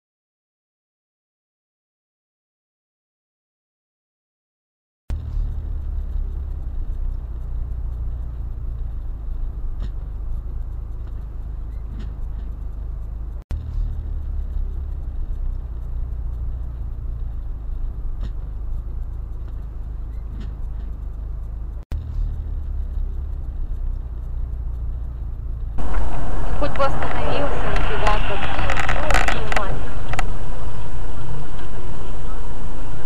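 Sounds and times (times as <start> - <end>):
road and engine rumble inside car: 5.1 - 33.0
faint ticks: 5.6 - 26.2.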